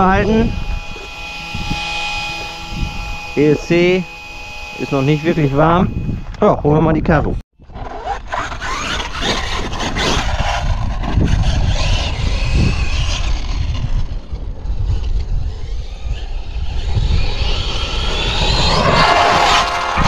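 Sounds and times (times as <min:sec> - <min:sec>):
electric motor whining: 0:00.0 - 0:20.0
low rumble: 0:09.3 - 0:20.0.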